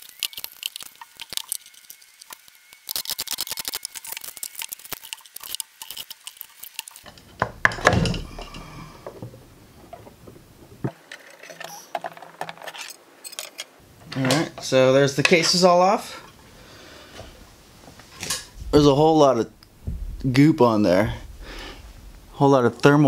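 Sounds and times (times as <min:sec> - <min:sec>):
heavy knock on wooden workbench: 0:18.6 - 0:22.4.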